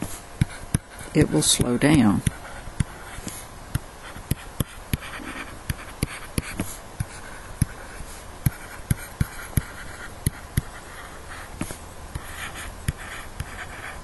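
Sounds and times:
stylus tapping on tablet screen: 0.0 - 7.8, 8.4 - 10.8.

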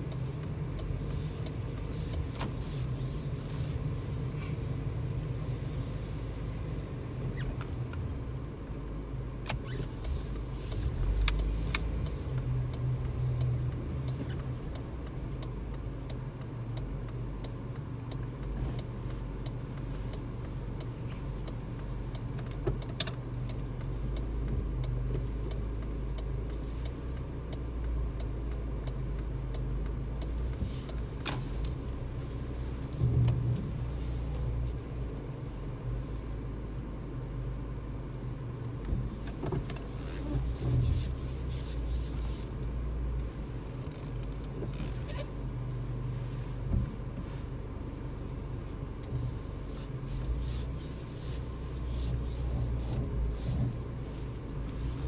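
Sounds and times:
car engine rumble inside cabin: 0.0 - 55.0
small clicks and knocks in cabin: 9.4 - 34.6, 38.1 - 41.0, 43.7 - 45.4.

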